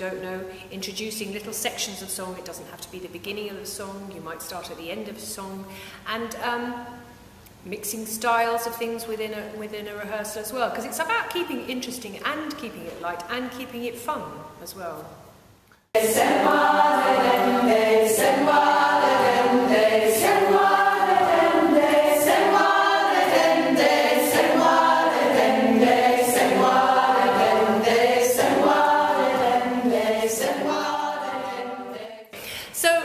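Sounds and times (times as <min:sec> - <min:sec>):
choir singing: 0:16.0 - 0:32.3.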